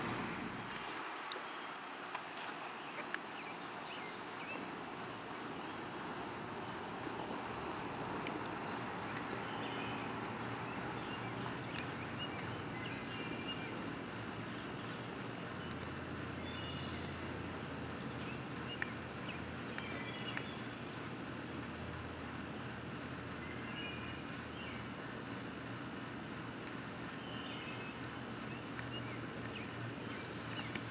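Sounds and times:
low engine hum: 0.0 - 1.0
traffic rumble: 0.0 - 30.9.

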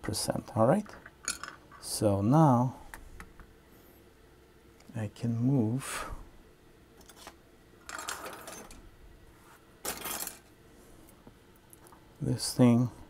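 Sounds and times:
rustling and light tool clatter: 7.0 - 8.8.

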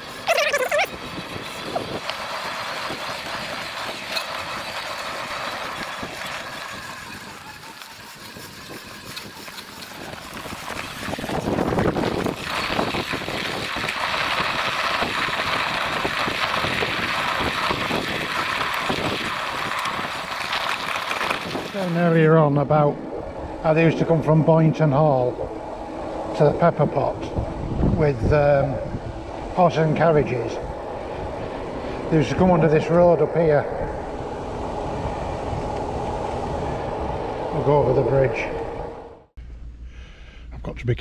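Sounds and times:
bike tyres on dirt track: 0.0 - 26.4
low rumble: 8.8 - 41.0.

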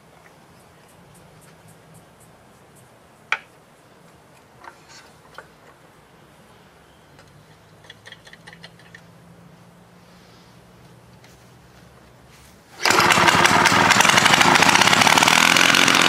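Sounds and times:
light clicks on engine fittings: 7.2 - 9.0.

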